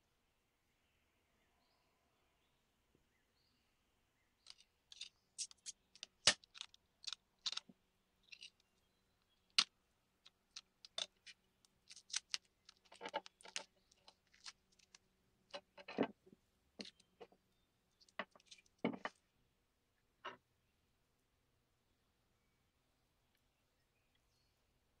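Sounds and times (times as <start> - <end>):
utility knife scraping tape: 4.5 - 7.6.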